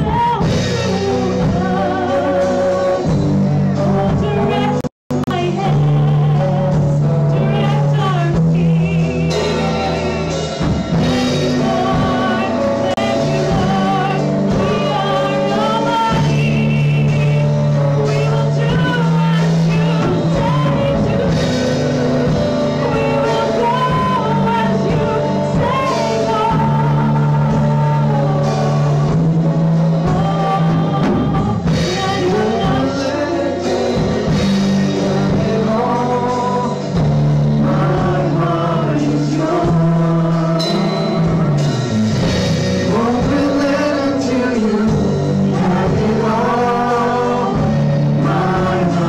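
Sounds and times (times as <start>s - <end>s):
women singing: 0.0s - 41.7s, 42.8s - 49.0s
electric guitar: 0.0s - 49.0s
keyboard: 0.0s - 49.0s.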